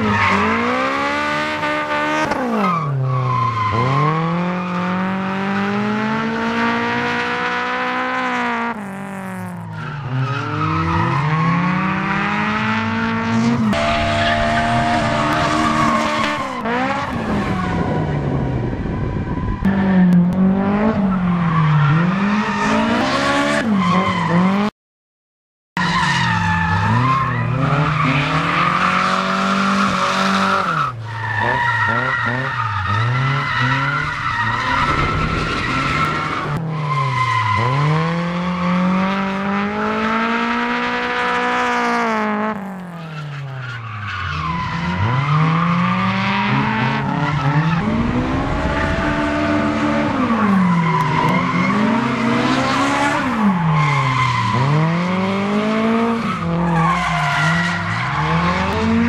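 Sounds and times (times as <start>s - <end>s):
tyres squealing and skidding: 0.0s - 5.4s, 9.5s - 18.2s, 21.0s - 24.7s, 25.8s - 38.8s, 42.8s - 59.0s
car engines revving hard: 0.0s - 24.7s, 26.2s - 59.0s.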